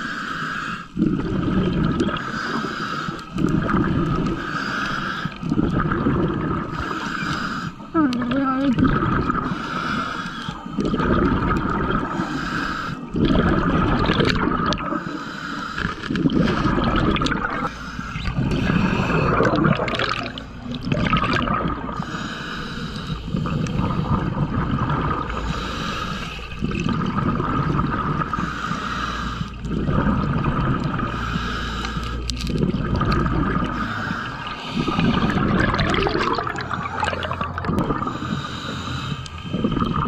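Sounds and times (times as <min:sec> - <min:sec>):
diver breathing through regulator: 0:00.0 - 0:07.9, 0:09.1 - 0:20.8, 0:21.5 - 0:40.0
bubbling exhalations: 0:00.9 - 0:15.1, 0:15.8 - 0:22.3, 0:23.0 - 0:40.0.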